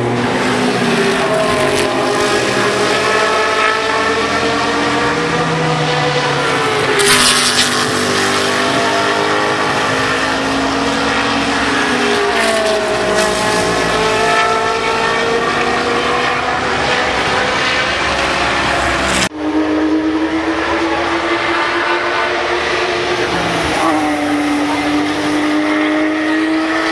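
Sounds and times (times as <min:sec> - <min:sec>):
race car engines passing: 0:00.0 - 0:26.9.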